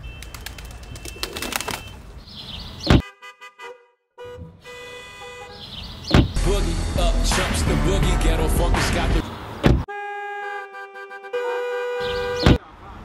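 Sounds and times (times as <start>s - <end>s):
car horns honking: 2.9s - 6.4s, 9.6s - 12.6s.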